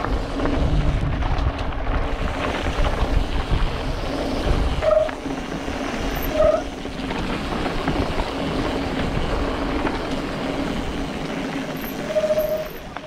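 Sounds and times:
wind on microphone: 0.0 - 10.1
bike rattling: 0.0 - 13.0
bike tyres crunching on gravel: 0.0 - 13.0
brief squeal: 12.0 - 12.8.

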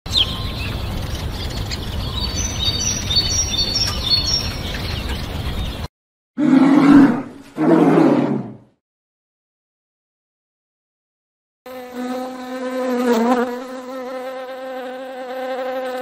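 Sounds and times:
birds chirping: 0.1 - 5.9
deep animal growling calls: 6.4 - 8.8.

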